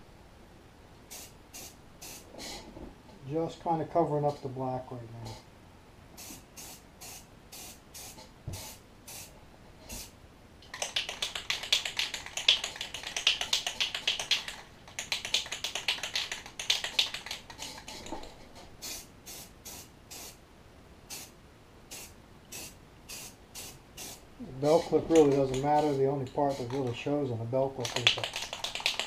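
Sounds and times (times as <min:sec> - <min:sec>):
short puffs of spray paint: 0:01.1 - 0:02.5, 0:06.2 - 0:09.3, 0:09.9 - 0:10.2, 0:18.8 - 0:20.4, 0:21.1 - 0:21.3, 0:21.9 - 0:26.8
spray can mixing ball rattling: 0:09.9 - 0:20.4, 0:21.9 - 0:27.1, 0:27.8 - 0:29.0.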